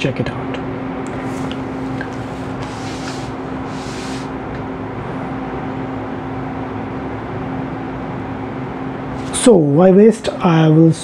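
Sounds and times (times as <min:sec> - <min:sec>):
steady mechanical hum: 0:00.0 - 0:11.0
soft hisses: 0:01.1 - 0:04.3.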